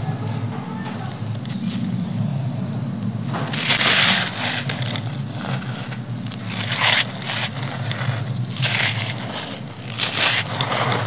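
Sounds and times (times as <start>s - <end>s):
gritty lumps crunching in hands: 0.1s - 11.0s
grit falling into clay pot: 3.3s - 11.0s.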